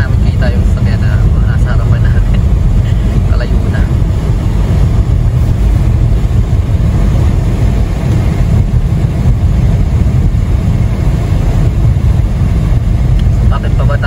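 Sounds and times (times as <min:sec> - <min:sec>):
car road and wind noise: 0:00.0 - 0:14.0.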